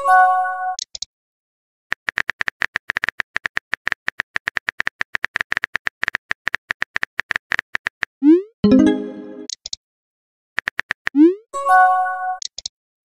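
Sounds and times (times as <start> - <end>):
notification chime: 8.6 - 9.5
keypress clicks with beeps: 12.4 - 12.7.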